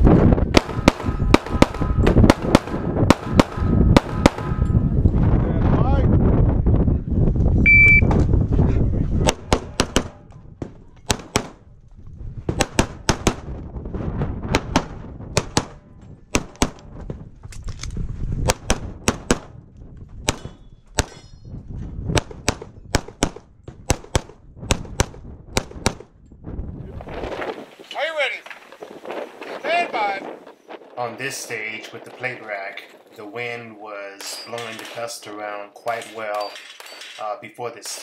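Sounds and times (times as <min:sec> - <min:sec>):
rapid pistol shots: 0:00.5 - 0:04.6, 0:11.1 - 0:11.6, 0:14.5 - 0:16.8, 0:22.2 - 0:26.1
shot timer beep: 0:07.7 - 0:08.1.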